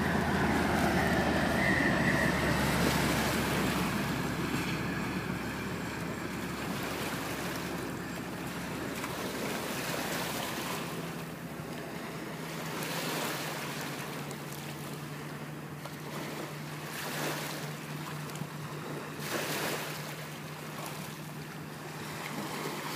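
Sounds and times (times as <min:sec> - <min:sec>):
steady low hum: 0:00.0 - 0:12.8
waves washing onto pebbles: 0:11.8 - 0:14.7, 0:18.8 - 0:21.1, 0:21.9 - 0:22.9.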